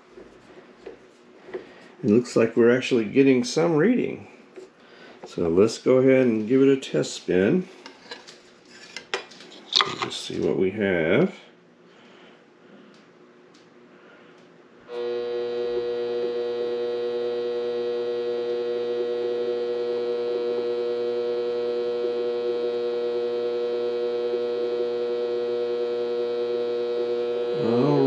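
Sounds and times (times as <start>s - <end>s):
lathe motor whine: 14.9s - 28.0s.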